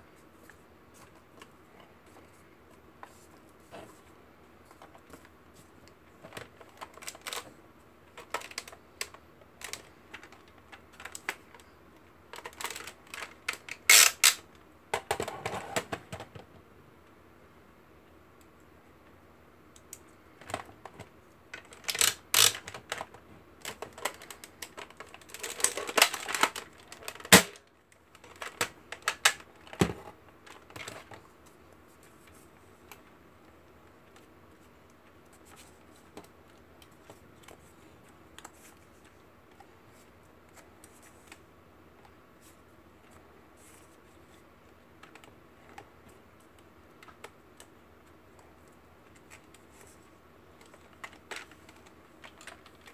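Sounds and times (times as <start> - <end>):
plastic toy blaster clicks and rattles: 12.4 - 14.4, 21.6 - 27.6.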